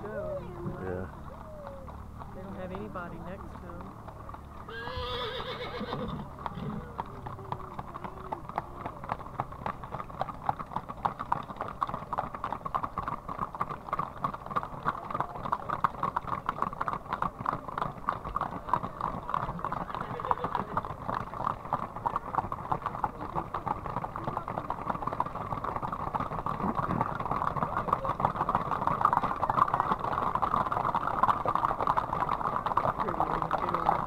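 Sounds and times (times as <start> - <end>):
horses hooves clopping on asphalt: 0.0 - 34.0
horse whinnying: 4.6 - 9.2, 18.5 - 21.5.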